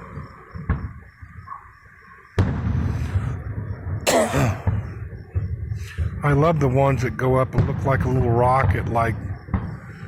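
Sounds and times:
fireworks bangs: 0.0s - 1.6s, 2.3s - 10.0s.

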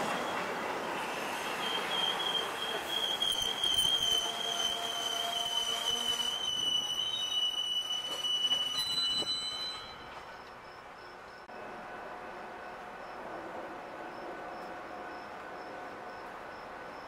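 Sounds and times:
train wheels squealing on rails: 0.0s - 11.4s
passing train rumble: 0.0s - 17.0s.

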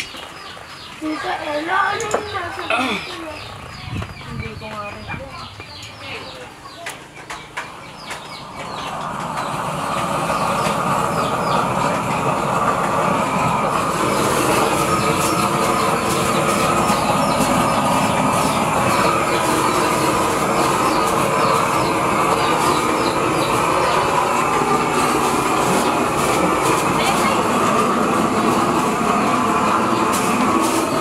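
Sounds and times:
blowtorch flame burning: 9.4s - 31.0s.

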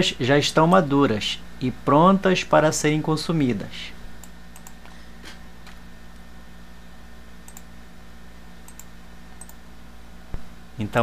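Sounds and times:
low steady hum: 0.0s - 11.0s
computer clicks: 4.2s - 4.9s, 7.4s - 7.7s, 8.6s - 9.6s.

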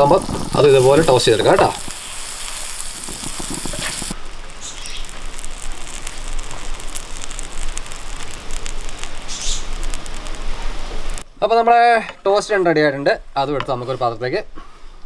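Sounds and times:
butter sizzling in frying pan: 0.0s - 11.2s.

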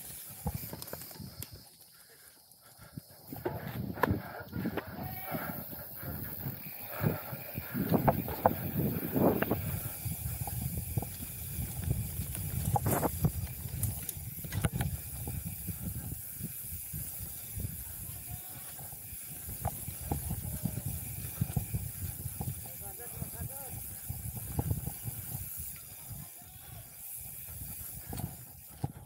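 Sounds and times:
bike tyres rumbling on dirt trail: 0.0s - 29.0s
wind on microphone: 3.2s - 29.0s.

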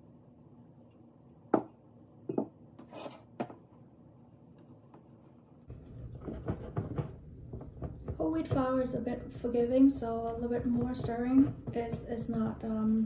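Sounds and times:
whisk scraping batter in bowl: 5.7s - 7.1s.

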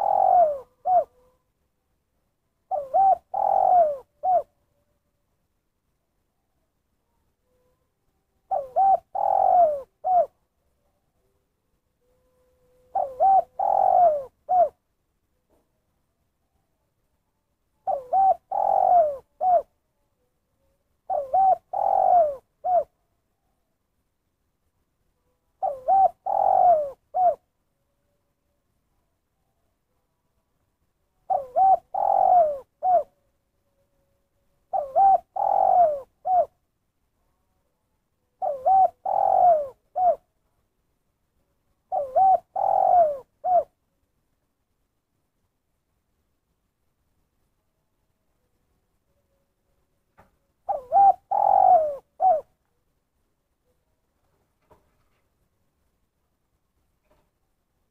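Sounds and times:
dove cooing: 0.0s - 1.4s, 2.7s - 4.6s, 8.5s - 10.4s, 12.0s - 14.8s, 17.8s - 19.8s, 21.1s - 23.0s, 25.6s - 27.5s, 31.2s - 33.2s, 34.7s - 36.6s, 38.4s - 40.3s, 41.8s - 43.8s, 50.6s - 52.6s.

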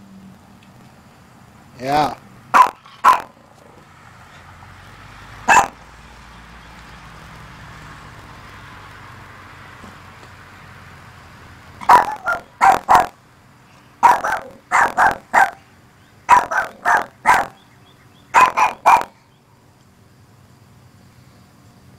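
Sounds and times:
small dog barking sharply: 2.5s - 3.4s, 5.5s - 5.8s, 11.8s - 13.2s, 14.0s - 15.6s, 16.3s - 17.6s, 18.3s - 19.2s.

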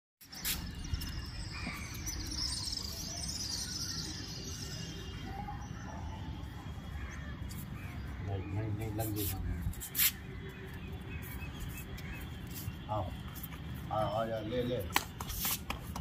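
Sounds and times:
small birds chirping: 0.2s - 14.8s.

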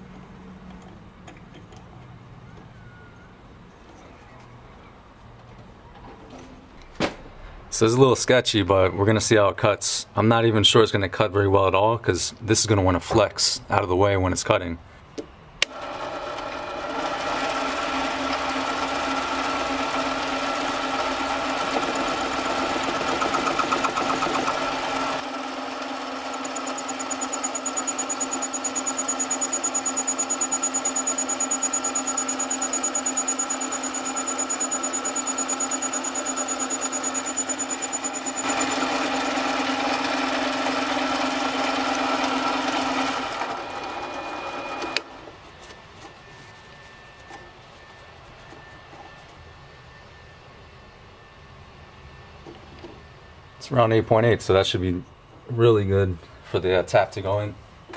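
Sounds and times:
metal lathe running: 15.6s - 45.3s.

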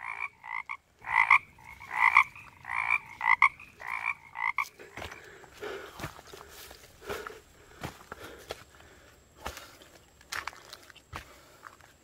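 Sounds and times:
frog croaking: 0.0s - 5.4s.

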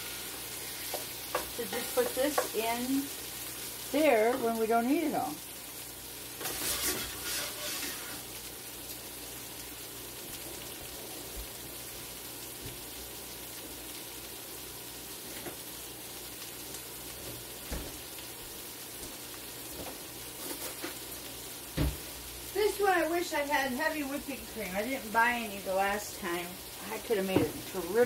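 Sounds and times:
food sizzling in a skillet: 0.0s - 28.0s.

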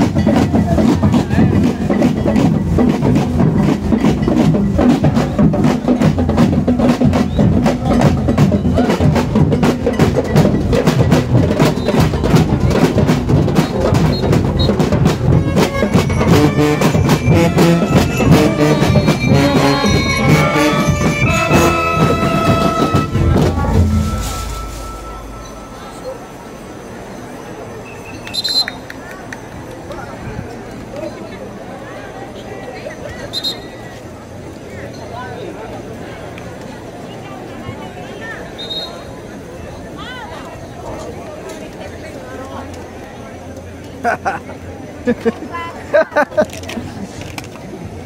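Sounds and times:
fast drum beat: 0.0s - 25.4s
brass melody: 14.8s - 26.1s.

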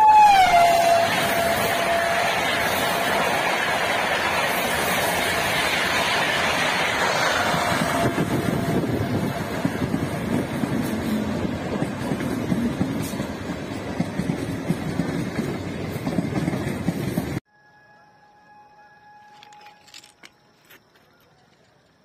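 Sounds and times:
train rushing past at high speed: 0.0s - 17.4s
electric train rumbling past: 0.0s - 19.8s.

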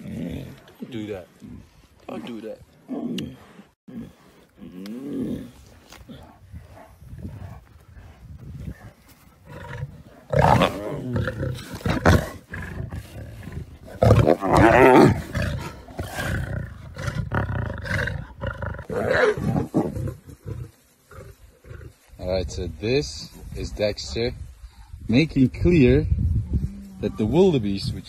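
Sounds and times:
lions growling: 0.0s - 22.0s.

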